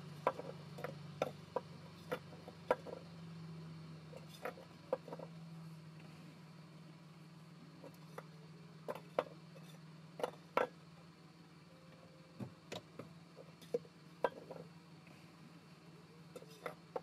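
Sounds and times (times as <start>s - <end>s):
steady low hum: 0.0s - 17.0s
knocks of hard objects handled: 0.2s - 3.0s.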